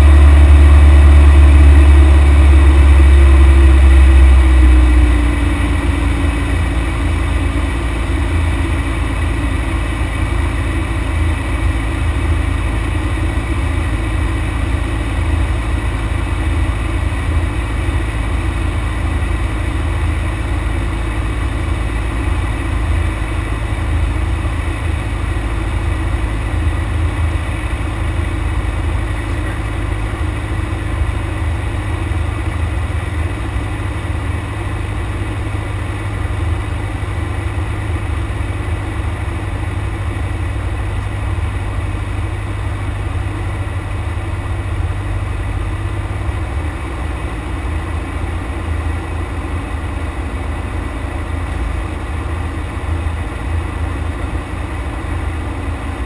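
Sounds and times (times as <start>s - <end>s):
airplane engine drone in cockpit: 0.0s - 56.0s.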